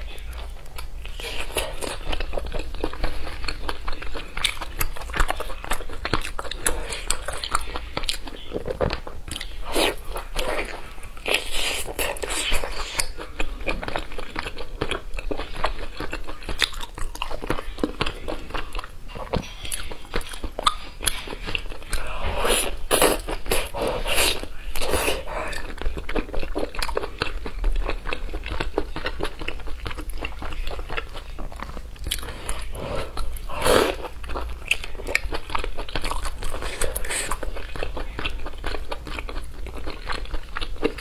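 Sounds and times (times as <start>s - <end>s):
faint low hum: 0.0s - 41.0s
wet chewing and lip smacks: 11.2s - 22.0s.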